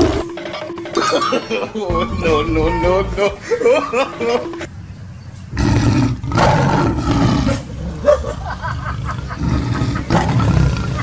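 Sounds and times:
tiger roaring: 5.5s - 8.3s, 9.4s - 11.0s.

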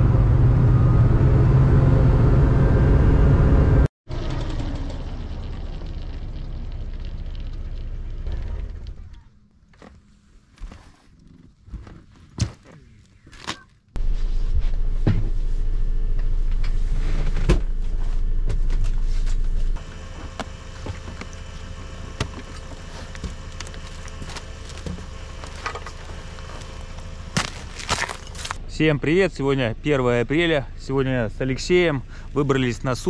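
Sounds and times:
hovercraft engine humming: 0.0s - 5.8s, 17.6s - 28.7s.

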